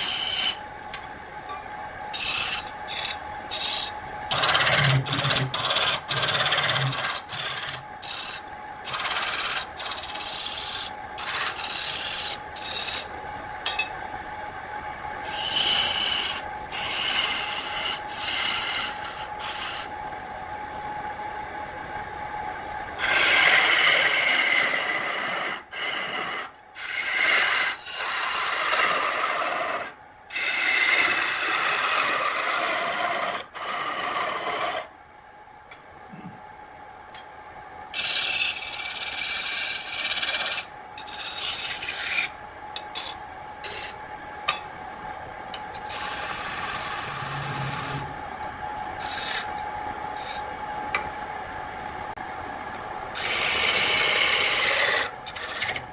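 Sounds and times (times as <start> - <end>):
turning tool shaving wood on lathe: 0.0 - 0.6, 2.2 - 13.0, 15.2 - 19.9, 23.0 - 34.9, 37.9 - 42.3, 42.9 - 44.0, 45.8 - 48.1, 49.0 - 49.5, 50.2 - 50.4, 53.2 - 55.8
lathe motor hum: 0.0 - 1.5, 2.1 - 13.1, 15.2 - 19.9, 23.0 - 34.9, 37.9 - 43.1, 45.6 - 51.1, 53.1 - 55.9.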